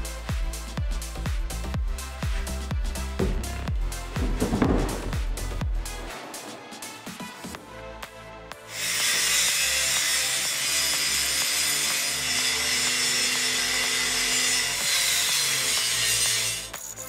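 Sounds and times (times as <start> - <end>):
angle grinder cutting metal: 8.6 - 16.9.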